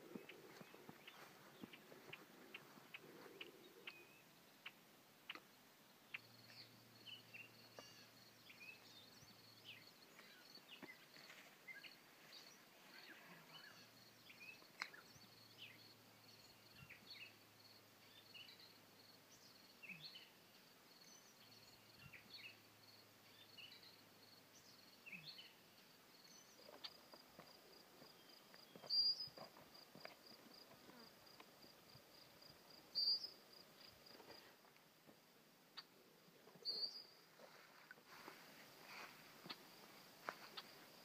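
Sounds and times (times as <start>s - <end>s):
bird chirps: 28.1s - 29.4s, 32.9s - 33.9s, 36.6s - 37.2s.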